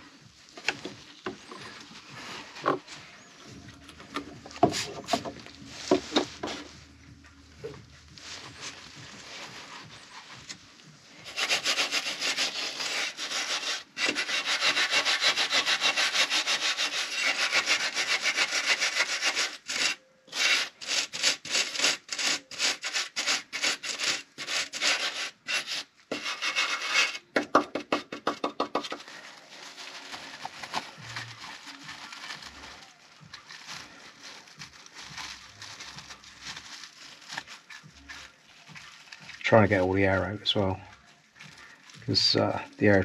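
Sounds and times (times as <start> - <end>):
brush scrubbing metal: 11.1 - 27.2.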